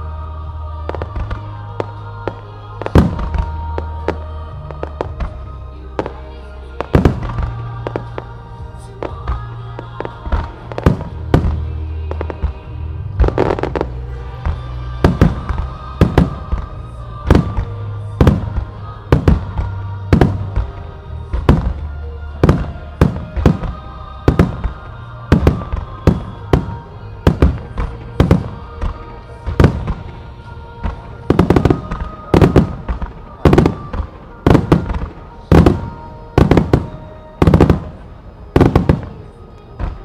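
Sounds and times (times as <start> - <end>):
music: 0.0 - 40.0
fireworks bursting: 0.8 - 40.0.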